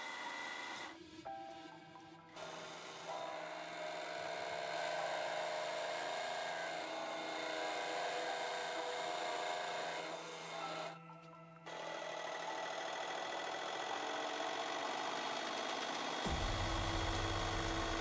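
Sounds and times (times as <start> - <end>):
hydraulic press hum and whine: 0.0 - 18.0.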